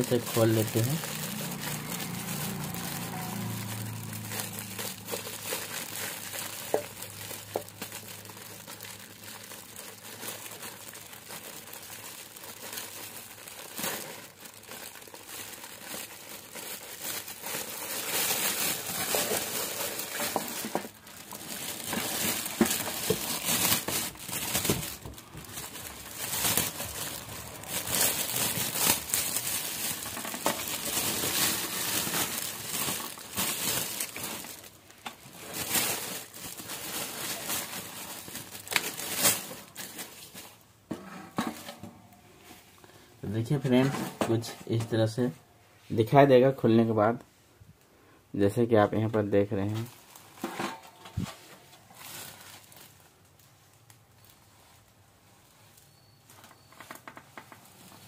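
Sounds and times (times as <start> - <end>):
plastic wrapping crinkling: 0.0 - 45.4, 49.3 - 58.0.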